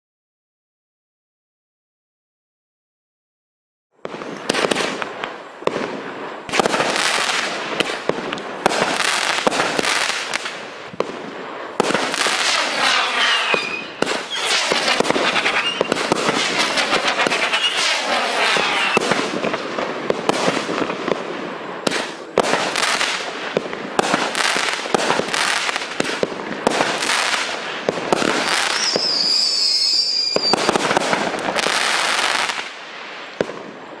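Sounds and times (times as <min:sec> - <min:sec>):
fireworks shots and crackling: 0:04.0 - 0:34.0
high whistling tone: 0:12.9 - 0:19.0, 0:28.6 - 0:30.6.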